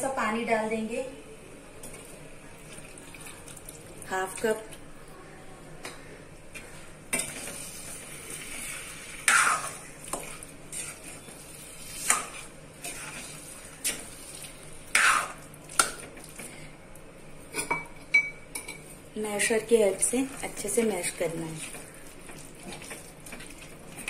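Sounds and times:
low sizzle of simmering food: 1.2s - 24.0s
metal spoon scraping a pan: 7.1s - 14.0s.

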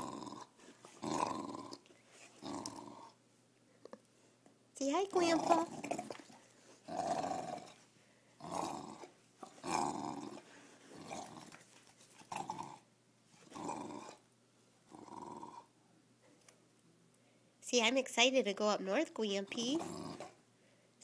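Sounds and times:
dog growling: 0.0s - 3.2s, 5.1s - 7.8s, 8.4s - 11.6s, 12.2s - 14.2s, 14.9s - 15.7s, 19.6s - 20.4s.

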